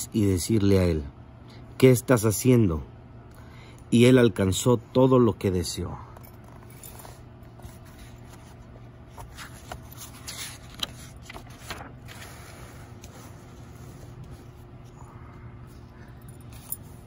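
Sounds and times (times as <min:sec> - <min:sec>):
faint steady hum: 0:00.0 - 0:17.0
book pages rustling: 0:06.3 - 0:15.0.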